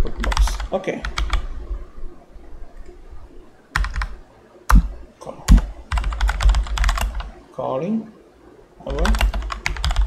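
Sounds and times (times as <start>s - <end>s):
computer keyboard typing: 0.1s - 1.5s, 3.7s - 4.9s, 5.5s - 7.3s, 8.9s - 10.0s.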